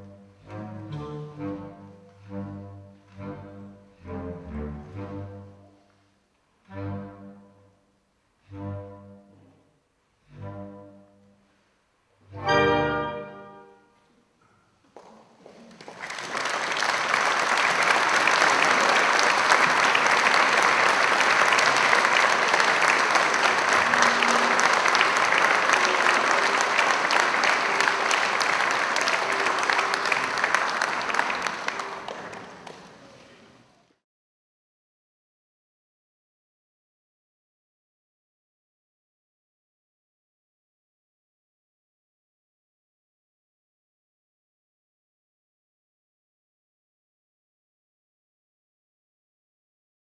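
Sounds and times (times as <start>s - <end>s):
audience applauding: 15.0s - 33.4s.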